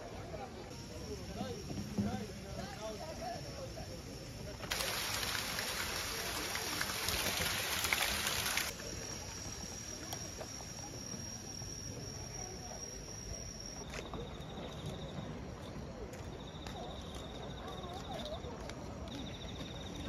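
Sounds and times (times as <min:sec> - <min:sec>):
rapidly pulsing insect chirp: 0:00.2 - 0:20.0
insect high-pitched trill: 0:00.8 - 0:18.5, 0:19.1 - 0:20.0
loud hiss: 0:03.0 - 0:09.3.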